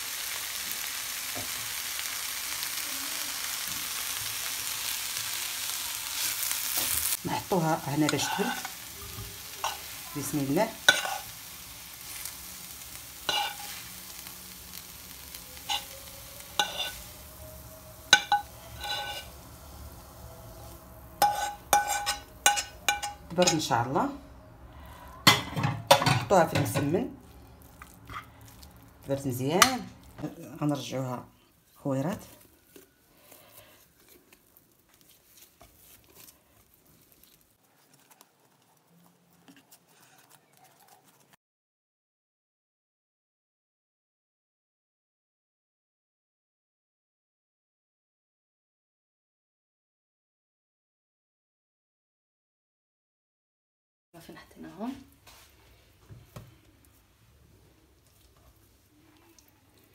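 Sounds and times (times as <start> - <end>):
spoon scraping food onto plate: 10.8 - 11.3, 13.2 - 14.2, 16.6 - 17.1, 18.1 - 19.5, 21.2 - 23.7
spoon clinking against dish: 21.2 - 23.6.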